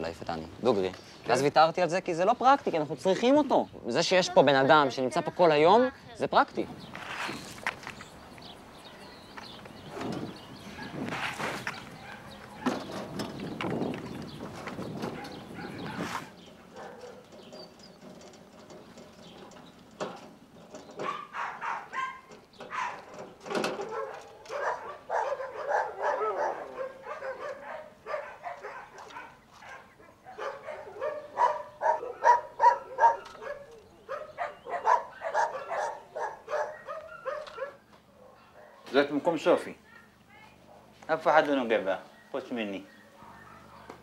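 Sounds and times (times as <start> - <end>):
dogs barking: 10.3 - 13.1, 15.0 - 17.4, 21.0 - 39.0, 40.6 - 41.0, 42.0 - 44.0.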